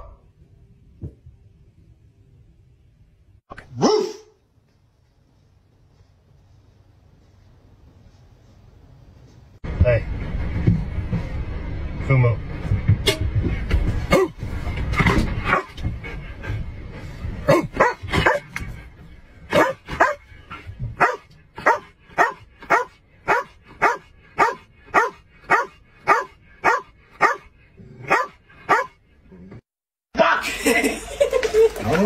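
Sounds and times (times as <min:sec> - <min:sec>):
dog barking: 0:03.7 - 0:04.4, 0:15.5 - 0:15.7, 0:17.5 - 0:18.5, 0:19.5 - 0:20.2, 0:21.0 - 0:29.0.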